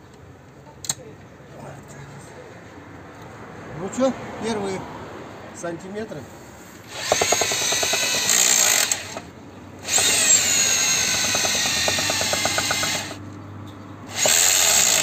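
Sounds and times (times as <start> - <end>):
rotary hammer motor whine: 6.9 - 13.2, 14.1 - 15.0.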